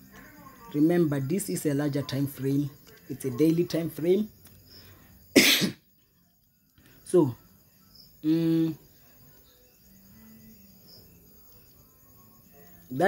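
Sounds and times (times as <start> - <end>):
crickets chirping: 0.0 - 13.0
man humming: 8.2 - 8.8.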